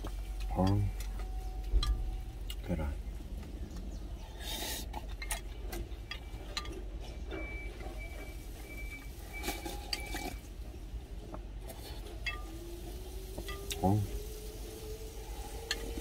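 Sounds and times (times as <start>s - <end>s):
steady low hum: 0.0s - 16.0s
slurping broth: 4.2s - 5.3s.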